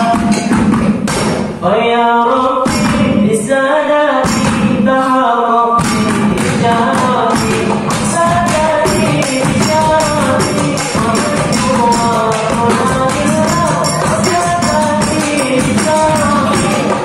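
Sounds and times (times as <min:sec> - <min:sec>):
man singing into microphone: 0:00.0 - 0:00.6, 0:01.6 - 0:17.0
bamboo tube struck with stick: 0:00.0 - 0:01.5, 0:05.8 - 0:17.0
hand percussion: 0:00.0 - 0:01.6, 0:02.6 - 0:03.4, 0:04.2 - 0:04.9, 0:05.8 - 0:17.0.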